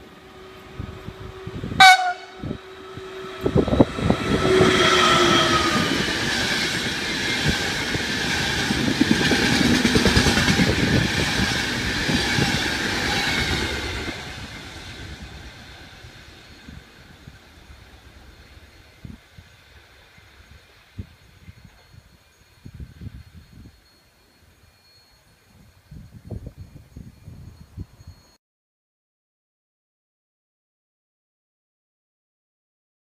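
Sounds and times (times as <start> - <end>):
train passing at speed: 0.0 - 24.0
train horn blast: 0.3 - 5.9
wheels clattering over rail joints: 5.0 - 18.8.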